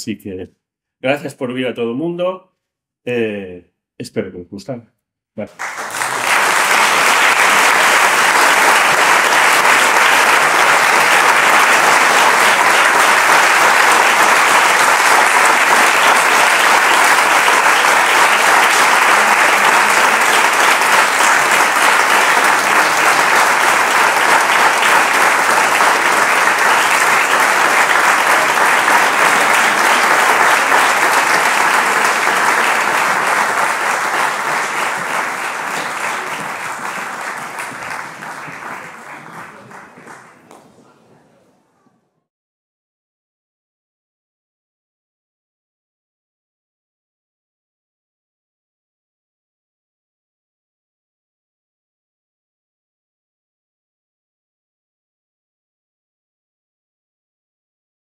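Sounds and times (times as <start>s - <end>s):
audience applause: 5.4s - 41.2s.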